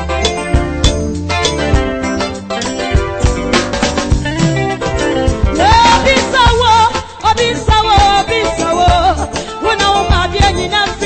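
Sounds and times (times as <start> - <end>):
sustained keyboard chords: 0.0 - 8.1
live band playing: 0.0 - 11.0
drum hits: 0.2 - 7.1.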